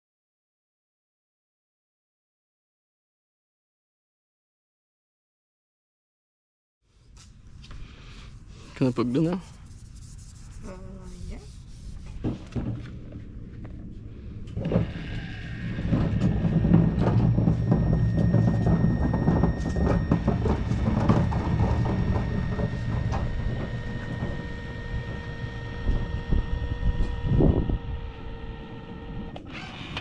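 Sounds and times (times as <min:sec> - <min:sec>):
caulking gun motor whine: 0:12.5 - 0:30.0.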